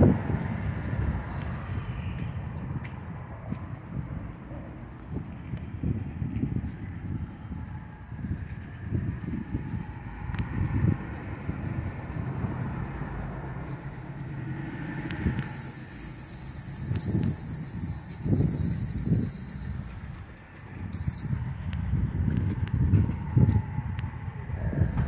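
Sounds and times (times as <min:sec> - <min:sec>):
car engine and road rumble: 0:00.0 - 0:25.0
high-pitched pulsing tone: 0:15.3 - 0:19.8, 0:20.9 - 0:21.5.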